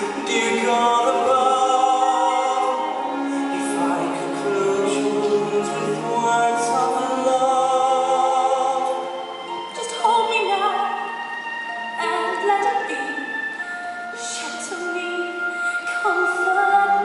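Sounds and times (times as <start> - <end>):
man singing a ballad: 0.0 - 2.8, 3.6 - 9.1
soft orchestral accompaniment: 0.0 - 17.0.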